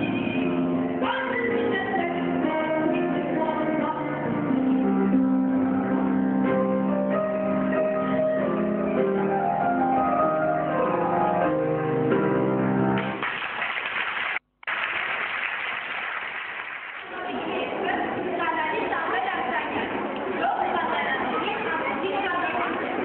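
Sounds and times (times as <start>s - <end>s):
grand piano playing: 0.0s - 13.2s
audience applause: 13.0s - 17.6s.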